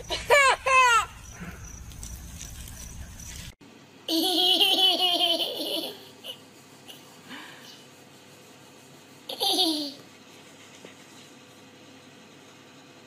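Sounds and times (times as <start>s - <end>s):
little girl giggling: 0.0s - 1.2s, 4.1s - 7.2s, 9.3s - 10.0s
toddler laughing: 0.1s - 1.2s, 4.1s - 7.1s, 9.3s - 10.0s.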